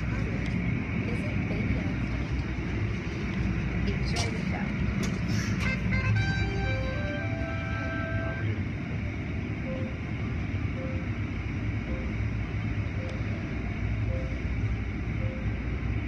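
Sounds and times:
car wash low rumble: 0.0 - 16.0
short beeps: 9.6 - 10.0, 10.7 - 11.2, 11.8 - 12.3, 14.0 - 15.6.

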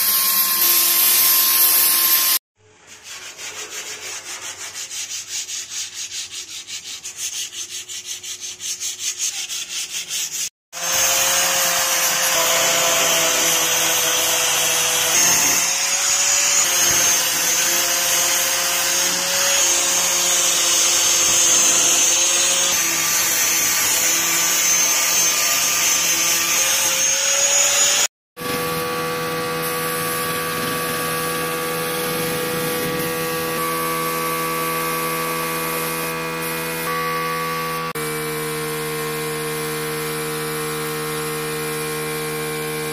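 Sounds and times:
hand sanding steel: 2.9 - 13.5
angle grinder whining on steel: 10.8 - 42.9.

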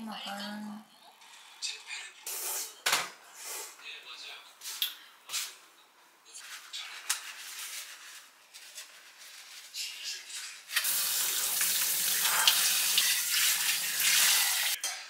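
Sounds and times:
faucet water running: 10.8 - 14.8.

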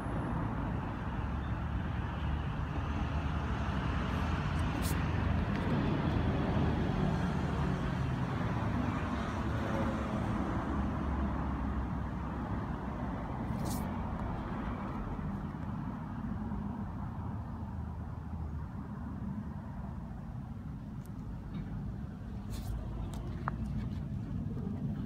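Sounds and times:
road traffic rumble: 0.0 - 25.0.

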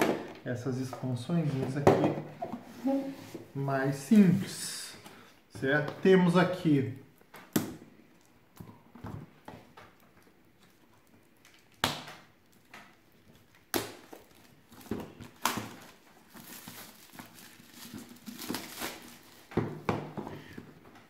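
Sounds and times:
plastic wrap crinkling: 8.1 - 19.9
shrink wrap tearing: 13.4 - 19.5.

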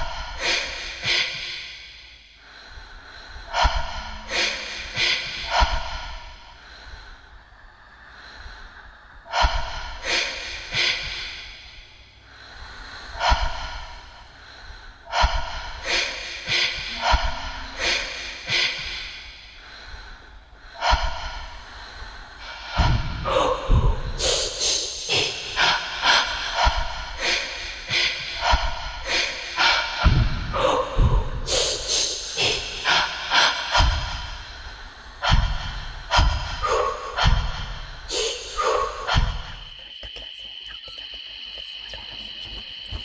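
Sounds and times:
heavy breathing gasps: 0.0 - 43.0
deep thumps: 30.1 - 31.2.

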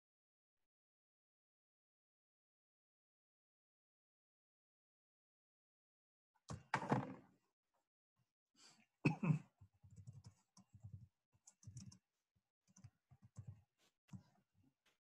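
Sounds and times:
computer keyboard clicking: 9.9 - 12.0.

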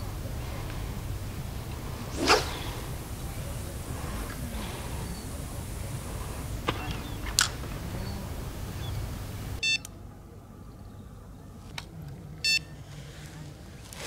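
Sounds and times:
bite alarm beeps: 9.6 - 9.9, 12.4 - 12.7.

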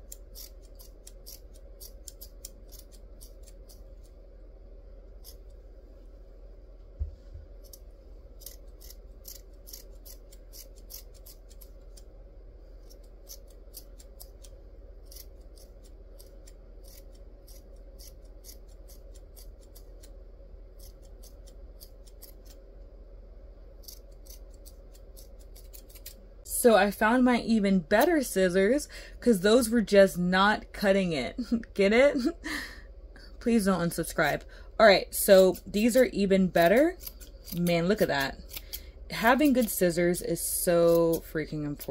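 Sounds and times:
scissors snipping yarn: 0.0 - 4.2, 5.1 - 5.6, 7.4 - 12.2, 12.8 - 22.6, 23.8 - 26.2, 35.2 - 41.9
faint steady hum: 0.0 - 41.9.

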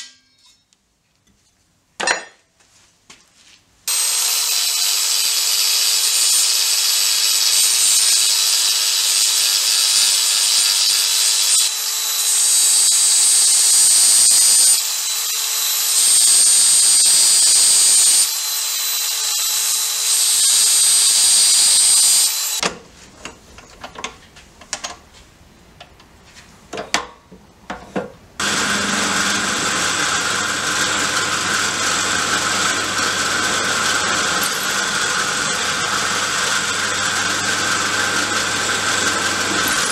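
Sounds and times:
angle grinder cutting steel: 3.9 - 22.6, 28.4 - 39.9
drill press drilling steel: 3.9 - 22.6, 28.4 - 39.9.

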